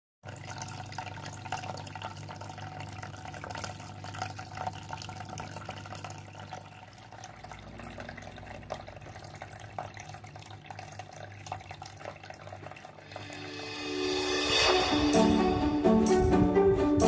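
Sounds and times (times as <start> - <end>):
water splashing and trickling: 0.2 - 14.6
low steady hum: 0.4 - 16.9.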